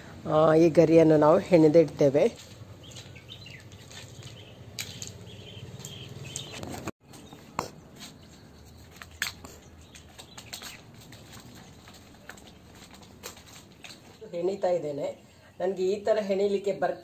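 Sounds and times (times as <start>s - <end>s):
dry palm fronds rustling: 2.2s - 7.2s, 7.9s - 14.8s.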